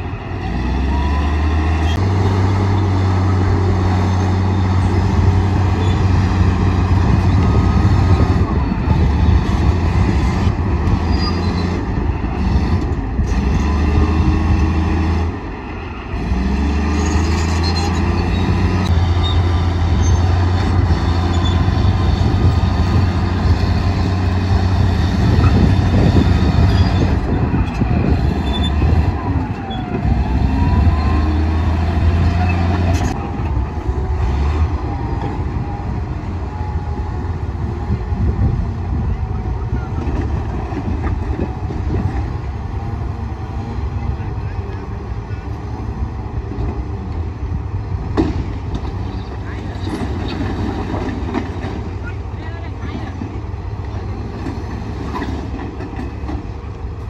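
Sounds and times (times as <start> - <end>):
bulldozer diesel engine under load: 0.0 - 57.0
squeals: 11.0 - 11.8, 16.9 - 20.4, 21.2 - 22.1, 26.6 - 29.0.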